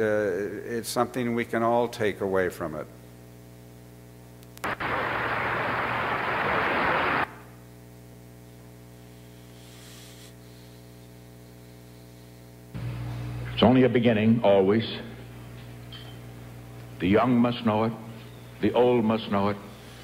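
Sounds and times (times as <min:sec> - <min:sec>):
buzzy mains hum: 0:00.0 - 0:20.0
applause over speakers: 0:04.6 - 0:07.3.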